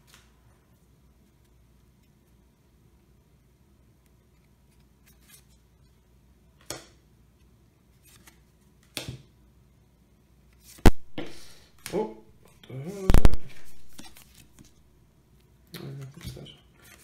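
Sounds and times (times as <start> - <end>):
cards sliding swishes: 10.5 - 12.0, 13.1 - 14.8
card snap: 13.1 - 14.7
card rustle: 13.1 - 14.8.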